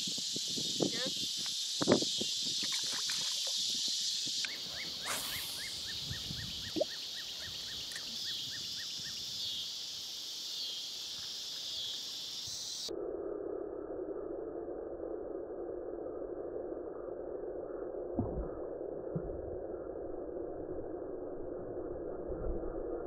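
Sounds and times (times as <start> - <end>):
high-pitched insect chorus: 0.0 - 12.9
short falling chirps: 4.5 - 7.0.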